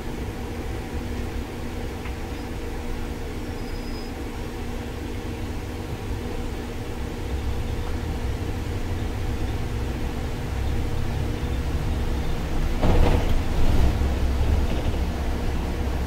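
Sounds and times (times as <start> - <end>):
bus engine hum: 0.0 - 16.0
road noise: 4.2 - 16.0.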